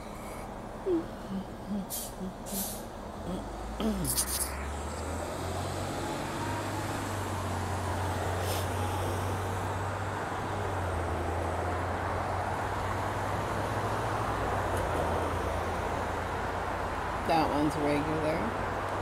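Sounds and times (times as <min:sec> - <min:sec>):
constant low hum: 0:00.0 - 0:05.3
passing cars road noise: 0:00.0 - 0:19.0.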